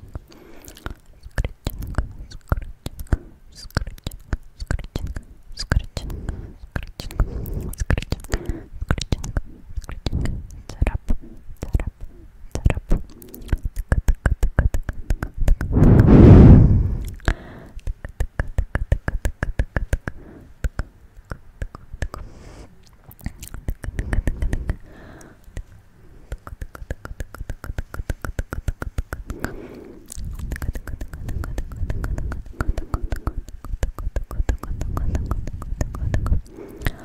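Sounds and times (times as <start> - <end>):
breathy sounds: 0.0 - 1.2, 6.0 - 8.8, 15.7 - 17.8, 22.1 - 37.0
tongue clicks and lip smacks: 0.0 - 15.9, 17.0 - 22.2, 22.8 - 37.0.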